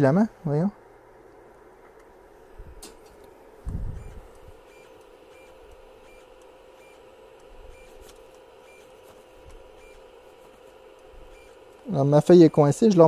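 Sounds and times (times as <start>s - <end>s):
printer fans humming: 0.0s - 13.0s.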